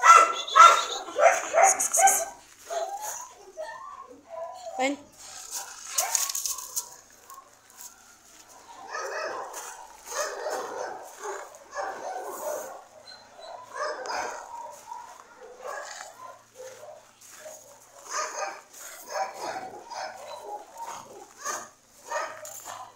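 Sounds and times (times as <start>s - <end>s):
dogs barking: 0.0s - 4.6s, 5.5s - 22.9s
brief rustle: 5.2s - 8.0s.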